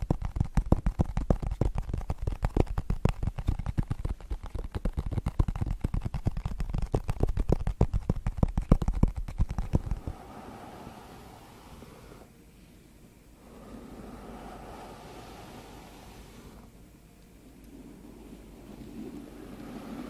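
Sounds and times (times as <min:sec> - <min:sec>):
brush swishing through hair: 0:09.5 - 0:12.3, 0:13.5 - 0:16.7.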